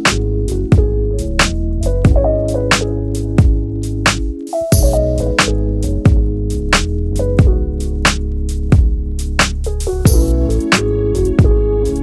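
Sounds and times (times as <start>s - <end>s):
held bass notes: 0.0s - 4.0s, 4.8s - 12.0s
drum hits: 3.4s - 7.7s, 10.1s - 10.4s.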